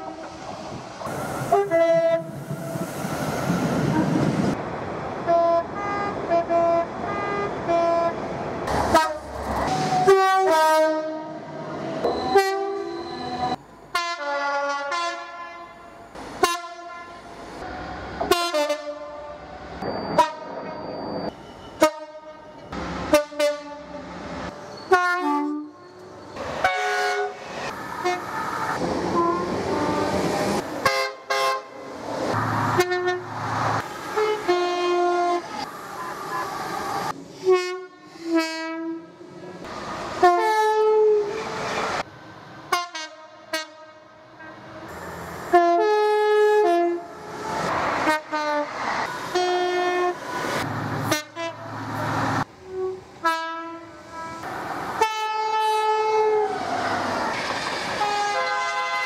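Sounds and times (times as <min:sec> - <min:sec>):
trains rumbling past: 0:00.0 - 0:59.0
train horn blasts: 0:01.5 - 0:02.4, 0:08.9 - 0:09.3, 0:10.0 - 0:11.4, 0:12.3 - 0:13.0, 0:13.9 - 0:17.2, 0:18.3 - 0:19.4, 0:20.2 - 0:20.5, 0:21.8 - 0:24.1, 0:24.9 - 0:25.9, 0:26.6 - 0:27.4, 0:28.0 - 0:28.3, 0:29.1 - 0:30.2, 0:30.8 - 0:31.8, 0:32.7 - 0:33.3, 0:34.2 - 0:35.5, 0:37.4 - 0:39.1, 0:40.2 - 0:41.3, 0:42.7 - 0:44.5, 0:45.5 - 0:47.0, 0:48.0 - 0:48.7, 0:49.3 - 0:50.2, 0:51.1 - 0:51.7, 0:52.6 - 0:56.5, 0:58.0 - 0:59.0.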